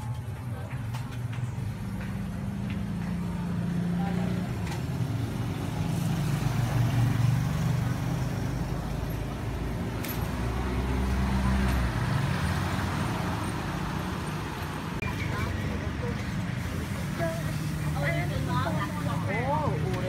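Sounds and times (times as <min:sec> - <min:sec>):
traffic rumble: 0:00.0 - 0:20.0
faint voices: 0:13.0 - 0:20.0.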